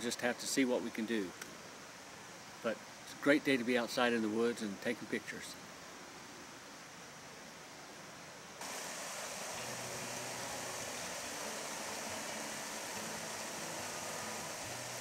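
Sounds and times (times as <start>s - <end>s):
fast river rushing over rocks: 8.6s - 15.0s.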